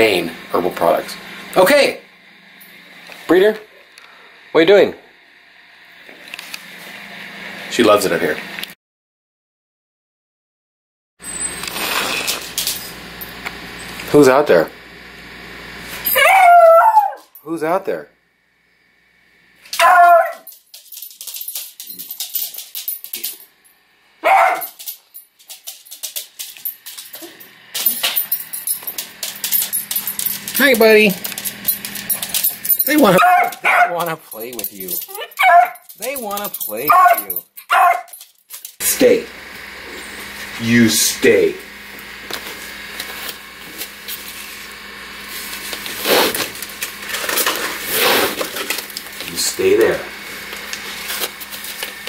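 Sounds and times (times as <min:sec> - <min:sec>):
dog barking: 0:16.2 - 0:17.2, 0:19.8 - 0:20.5, 0:24.2 - 0:24.8, 0:33.2 - 0:34.0, 0:35.1 - 0:35.9, 0:36.8 - 0:38.2.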